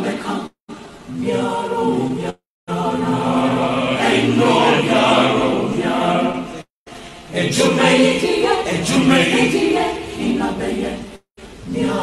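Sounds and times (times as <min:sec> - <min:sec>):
group of voices chanting: 0:01.2 - 0:06.7.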